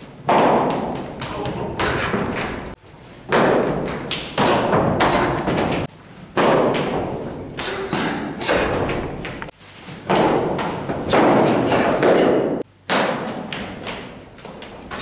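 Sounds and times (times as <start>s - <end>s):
feet stamping on floor: 0.0s - 15.0s
sparring strikes and blocks: 0.3s - 9.5s.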